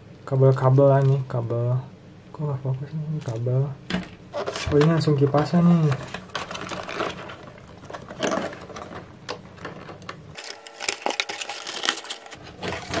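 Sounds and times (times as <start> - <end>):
cardboard box rustling and scraping: 4.3 - 4.9, 10.8 - 13.0.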